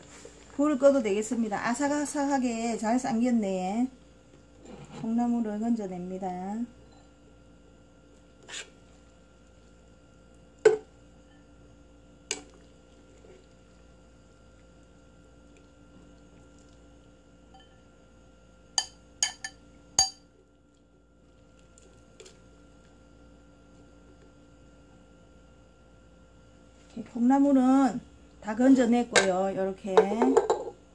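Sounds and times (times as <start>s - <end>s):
faint steady hum: 0.0s - 30.9s
utensil clinking against metal pot: 18.8s - 20.2s.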